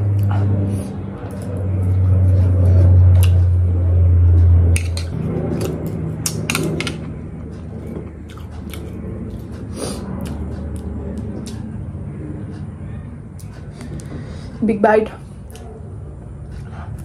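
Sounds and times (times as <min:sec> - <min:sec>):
biting and chewing: 0:00.0 - 0:12.7
loud low hum: 0:00.0 - 0:17.0.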